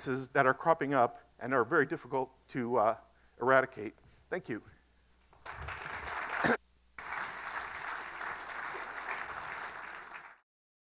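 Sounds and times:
audience applauding: 5.4 - 10.4.

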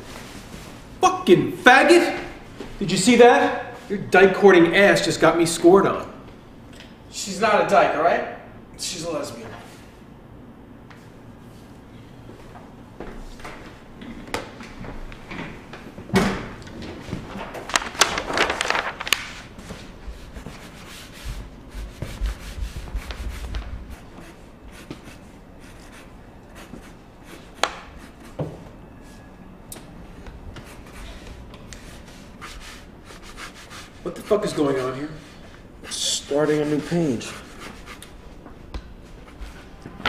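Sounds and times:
paper rustling and rubbing: 17.2 - 28.4, 30.6 - 38.1.

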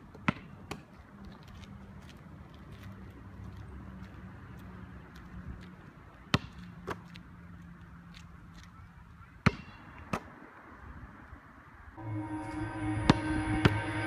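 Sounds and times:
basketball bouncing on asphalt: 0.1 - 1.6, 4.0 - 8.8, 9.4 - 10.4.

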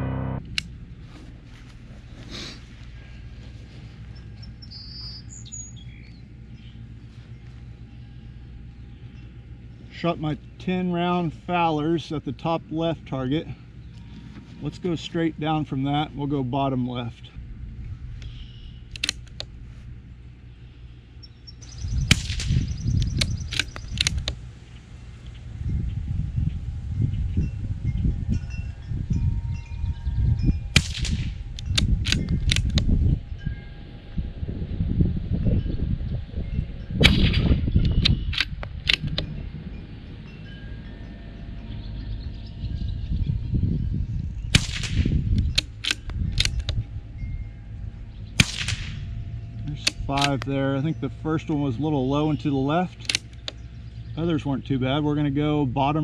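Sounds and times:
rifle bolt clicks: 18.9 - 19.5, 22.1 - 24.4, 30.8 - 32.8, 38.0 - 39.2, 44.6 - 46.8, 49.8 - 50.5, 52.9 - 53.6
suppressed rifle shot: 22.0 - 24.3, 30.8 - 32.8, 37.0 - 37.5, 44.5 - 46.8, 48.4 - 49.1.

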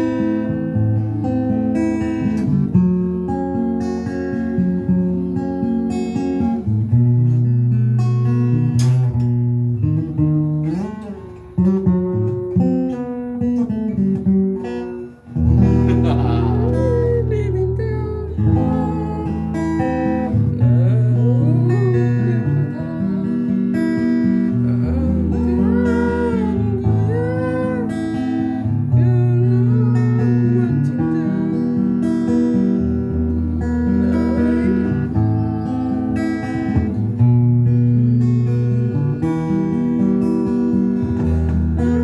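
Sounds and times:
acoustic guitar strumming chords: 0.0 - 42.0.

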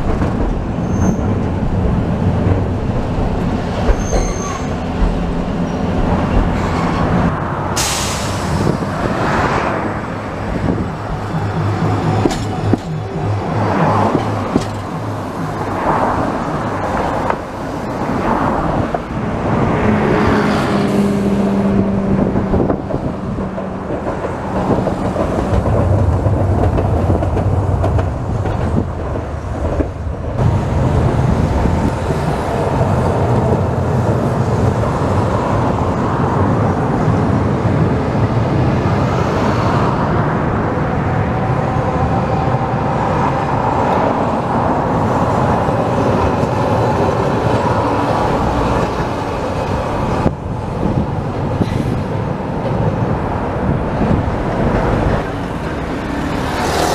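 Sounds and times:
road traffic: 0.0 - 56.9
tram motors and wheels on rails: 0.0 - 56.9.

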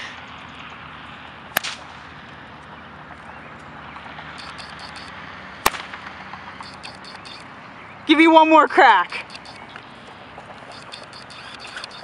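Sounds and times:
whip cracking: 1.6 - 2.0, 5.6 - 6.1.

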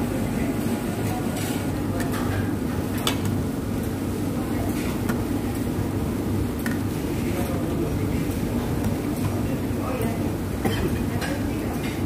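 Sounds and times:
restaurant background hum: 0.0 - 12.0.

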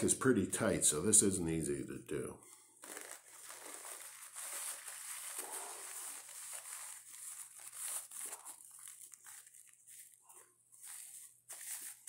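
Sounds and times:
paper filter crinkling: 2.5 - 12.0.

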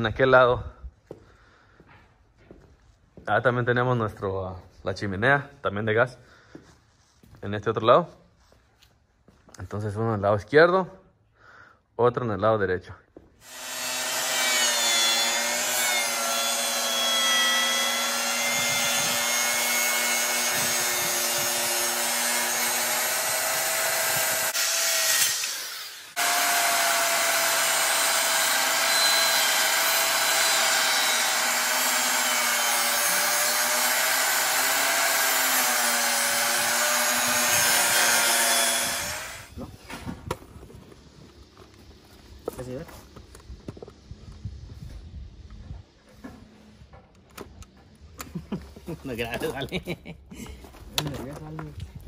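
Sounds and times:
power saw cutting plywood: 13.4 - 39.5.

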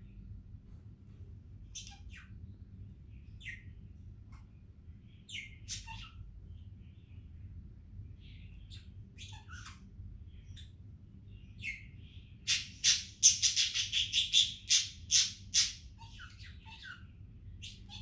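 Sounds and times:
budgerigar chirping and squawking: 1.7 - 2.4, 5.3 - 6.3, 8.7 - 10.8, 11.6 - 18.0.

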